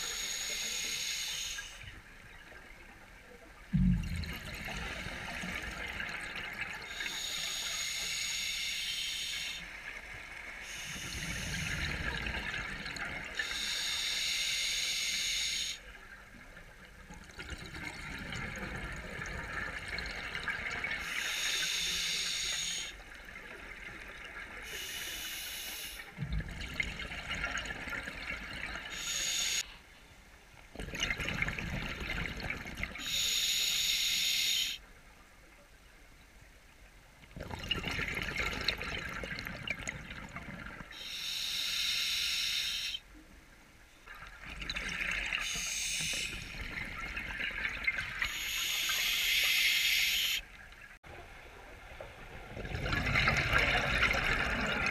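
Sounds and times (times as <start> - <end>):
exhaled bubbles rushing underwater: 3.6 - 13.7, 16.2 - 21.6, 26.2 - 29.0, 30.8 - 33.2, 37.2 - 41.0, 44.1 - 49.6, 50.2 - 54.9.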